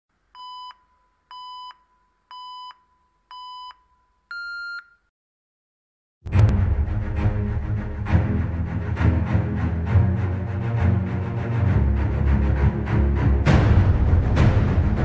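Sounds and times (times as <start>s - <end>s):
electronic countdown beeps: 0.4s - 4.9s
loud music with low hit: 6.3s - 10.8s, 11.8s - 15.0s.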